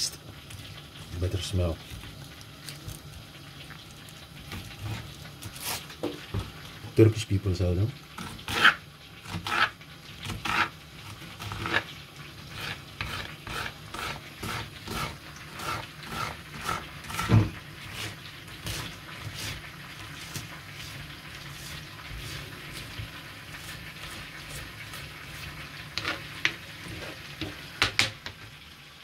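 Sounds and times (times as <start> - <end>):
knife chopping on wooden board: 13.0 - 19.6.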